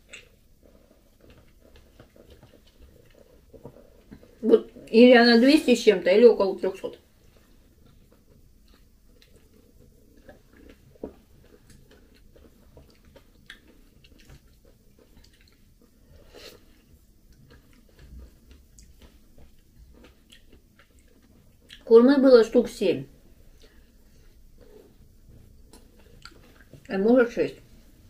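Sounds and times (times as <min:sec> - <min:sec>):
wet chewing and biting: 0:07.3 - 0:21.9.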